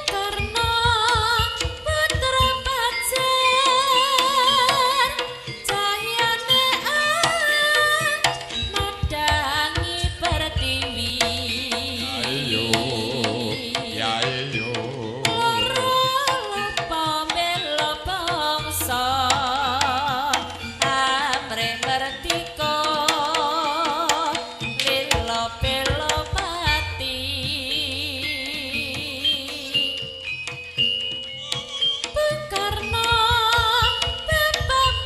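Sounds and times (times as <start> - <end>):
wavering melody with vibrato: 0.0 - 35.0
rapid drum strokes: 4.1 - 28.0.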